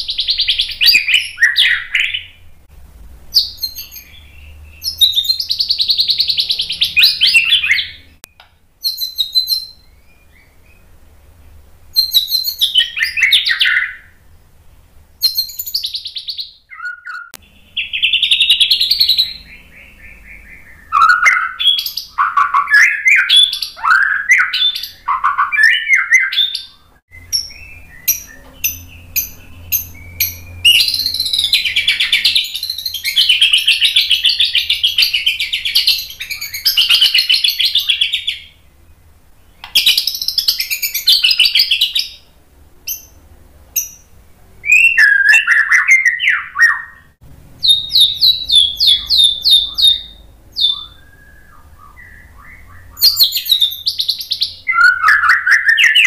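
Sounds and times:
bird chattering trill: 0.0 - 2.4, 3.3 - 10.8, 15.2 - 38.6, 44.8 - 56.0
bird whistled song: 0.0 - 2.5, 3.3 - 11.0, 11.9 - 14.3, 15.2 - 38.6, 39.4 - 42.3, 42.9 - 43.2, 43.8 - 56.0
bird sharp clicks: 39.6 - 40.1.

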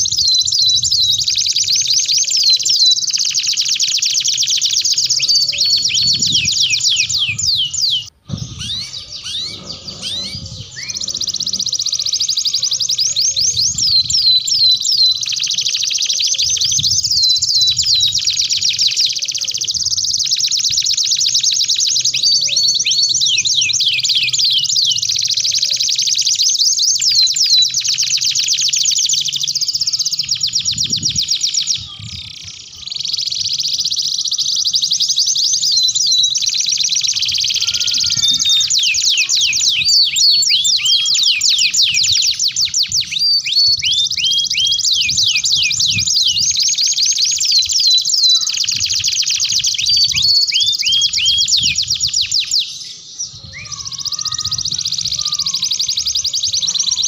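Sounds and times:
canaries singing trills: 0.0 - 57.0.

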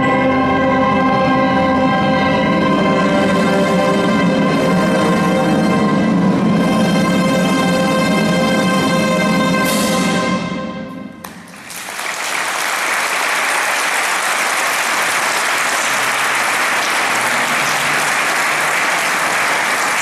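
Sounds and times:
audience applause: 11.3 - 20.0.

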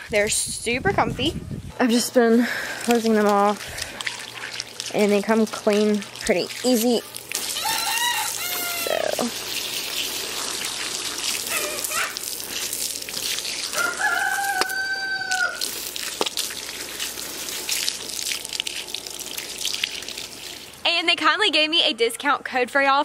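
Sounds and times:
rooster crowing: 7.4 - 9.1, 13.7 - 15.7.

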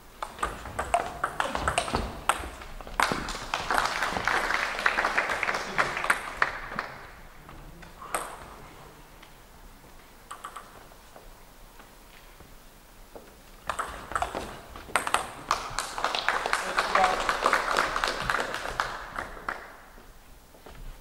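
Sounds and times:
crowd noise: 0.0 - 10.0, 13.7 - 20.2
table tennis ball clicking: 0.2 - 3.2, 10.3 - 10.8, 13.6 - 15.5.

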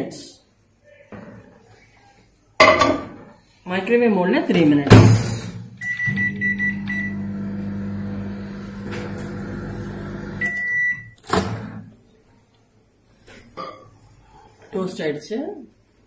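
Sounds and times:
keypad beeps: 5.8 - 7.2, 10.4 - 11.1
microwave running hum: 5.8 - 11.0
long microwave beep: 5.8 - 11.2.

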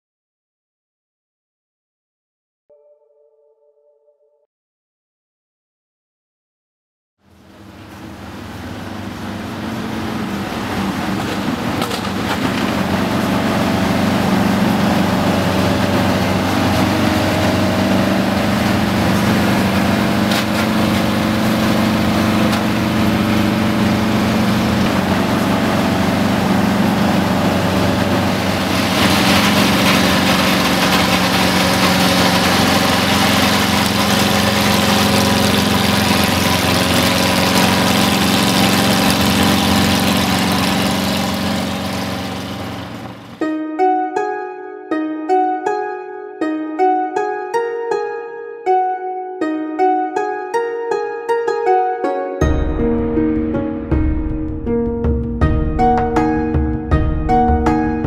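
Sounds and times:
vehicle engine idling: 7.3 - 43.4.

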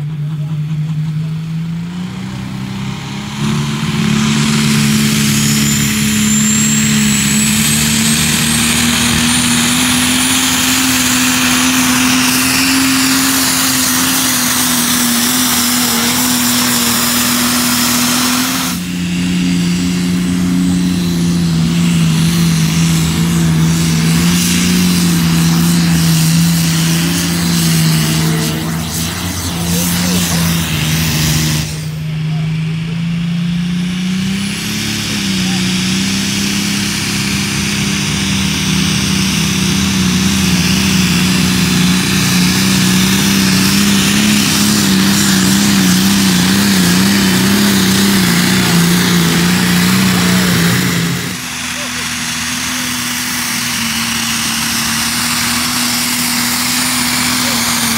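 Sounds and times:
tractor engine pulling under load: 0.0 - 57.9
thin rising whistle: 4.6 - 13.3.

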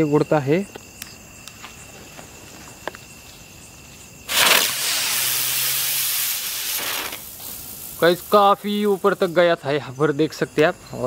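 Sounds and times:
firework hissing rush: 4.2 - 9.6.

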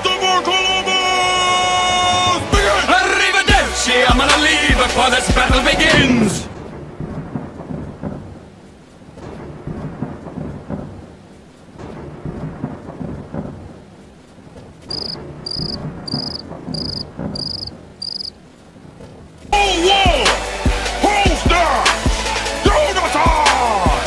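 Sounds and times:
rain: 0.0 - 24.0
loud hip-hop music: 2.6 - 6.0, 19.6 - 24.0
thunder rumbling: 9.2 - 18.4
cricket chirping: 14.9 - 18.4.

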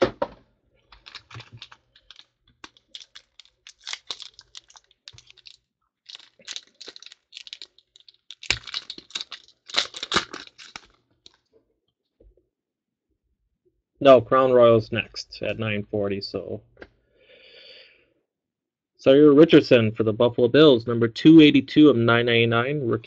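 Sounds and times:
foil wrapper crinkling: 0.8 - 11.4.

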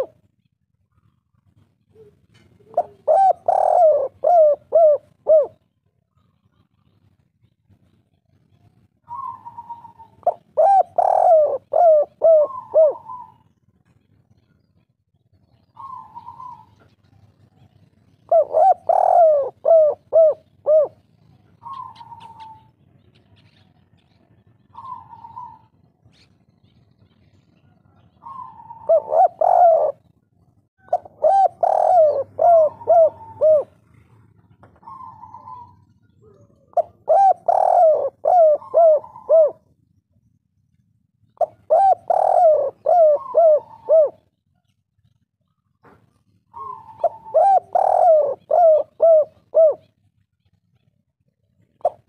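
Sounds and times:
dove cooing: 0.0 - 0.3, 0.9 - 6.9, 7.8 - 14.6, 15.5 - 39.7, 41.4 - 52.0.

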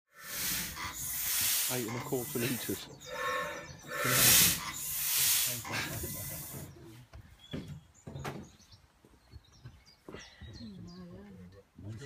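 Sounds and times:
loud hissing rushes: 0.1 - 6.8.

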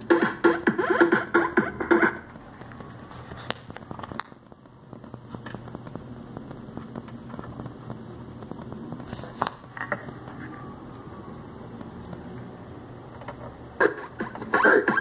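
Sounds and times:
speaker humming with crackling: 0.0 - 15.0.

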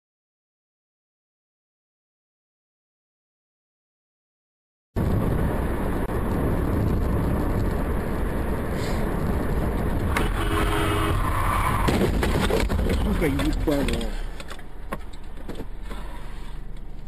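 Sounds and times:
car engine and road noise: 5.0 - 17.0
car crash knocks: 11.8 - 13.5.

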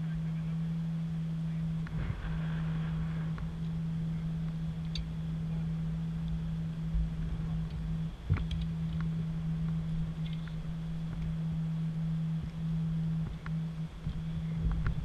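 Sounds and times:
steady low hum: 0.0 - 15.0
wind rumble: 1.5 - 15.0
faint clicks: 7.6 - 11.3.

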